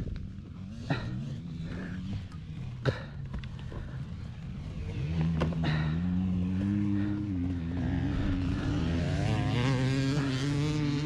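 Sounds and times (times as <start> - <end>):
dirt bike engine revving: 0.0 - 11.0.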